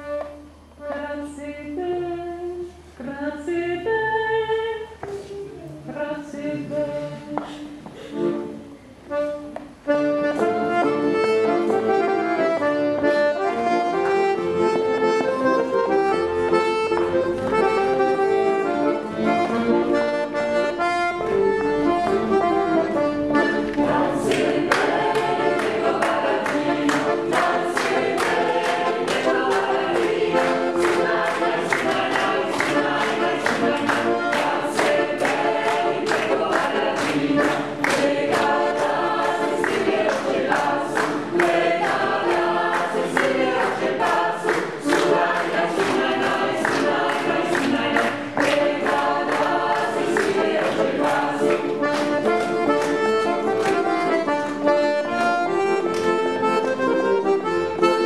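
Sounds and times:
mixed choir singing a cappella: 5.9s - 7.7s, 23.4s - 52.1s.

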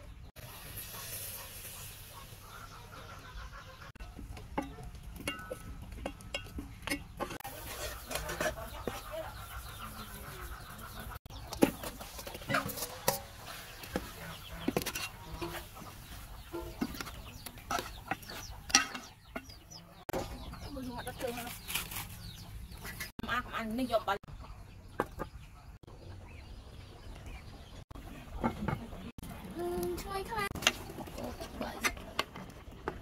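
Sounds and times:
chickens clucking: 0.0s - 33.0s
metal spoon scraping cooking pot: 4.4s - 11.0s, 11.6s - 20.3s.

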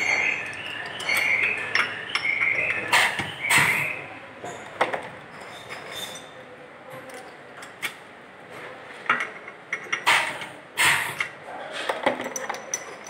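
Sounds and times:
capping machine squeaks: 0.0s - 4.1s
glass bottles clinking: 0.0s - 4.7s, 12.0s - 13.0s.

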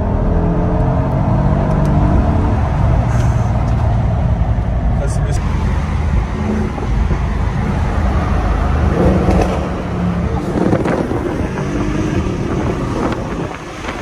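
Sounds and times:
car engine running: 0.0s - 14.0s
road and tyre noise: 0.0s - 14.0s.

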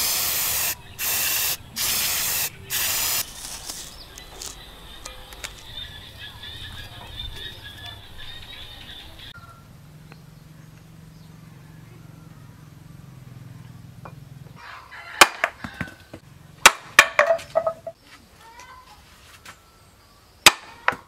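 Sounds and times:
axe splitting wood: 16.6s - 17.8s, 20.4s - 21.0s.

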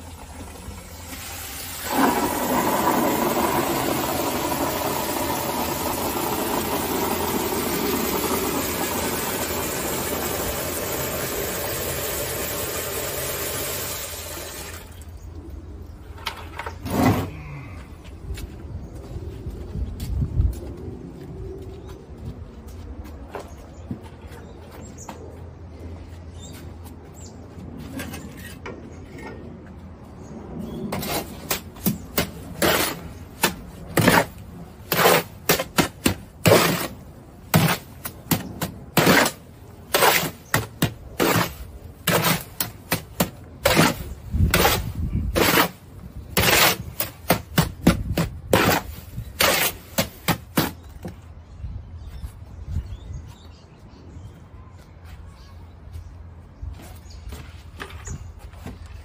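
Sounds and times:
shovel scraping steel wheelbarrow: 16.5s - 17.6s, 30.9s - 50.9s.

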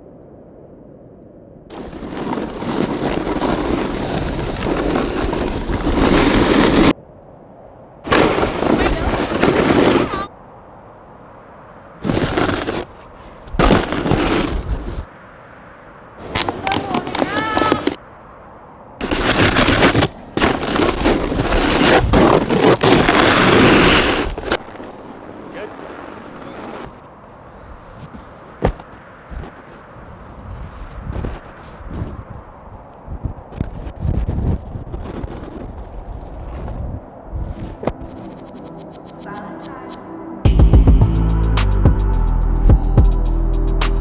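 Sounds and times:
snowboard scraping over snow: 1.7s - 7.0s, 8.1s - 10.3s, 12.0s - 15.1s, 19.0s - 32.5s, 33.6s - 38.3s.

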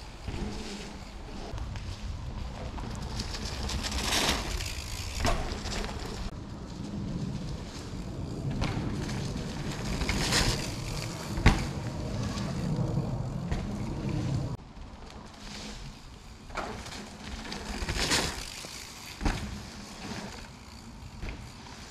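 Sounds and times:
low rumble: 0.0s - 14.6s
bike tyres rolling on dirt: 0.0s - 21.9s.

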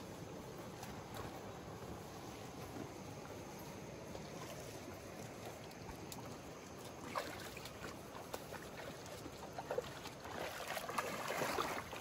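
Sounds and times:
creek water flowing over stones: 0.0s - 12.0s
small water splashes: 4.0s - 12.0s.

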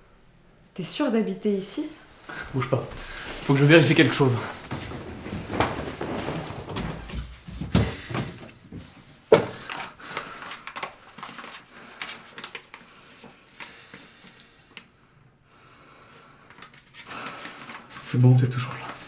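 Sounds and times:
paper rustling: 2.3s - 8.4s, 9.6s - 13.7s, 16.5s - 19.0s.

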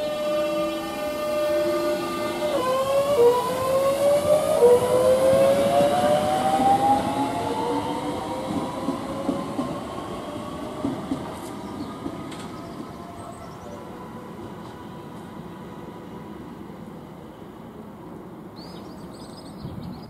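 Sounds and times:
train traction motor whine: 0.0s - 11.5s
train wheels rumbling on rails: 0.0s - 16.5s.

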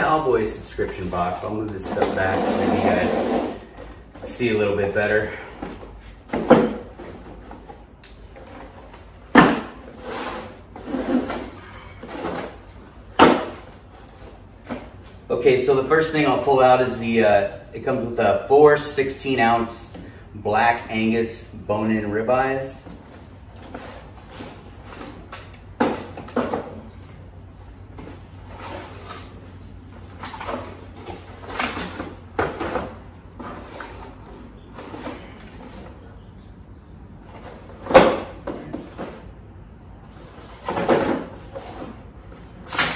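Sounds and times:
boxes scraping and shuffling: 0.0s - 42.9s
cardboard boxes thudding on table: 9.3s - 9.8s, 12.2s - 13.7s.

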